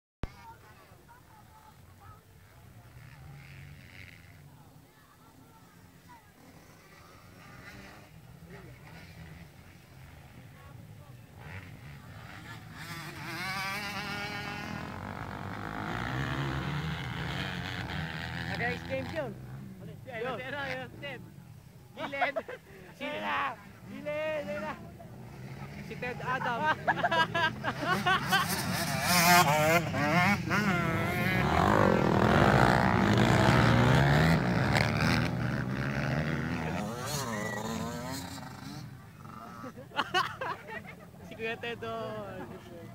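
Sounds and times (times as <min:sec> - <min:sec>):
dirt bike engine revving: 0:02.5 - 0:04.5, 0:05.9 - 0:21.2, 0:23.2 - 0:40.8
distant engine drone: 0:23.7 - 0:39.8.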